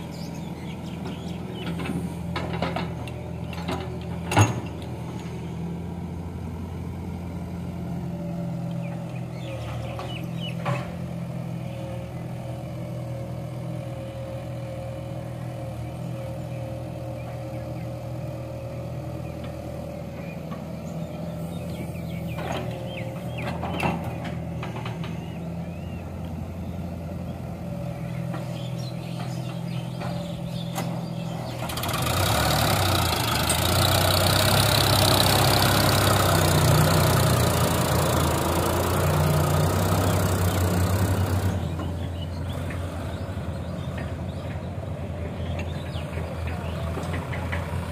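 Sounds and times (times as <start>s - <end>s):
excavator working: 0.0s - 47.9s
tractor diesel engine idling: 18.1s - 47.9s.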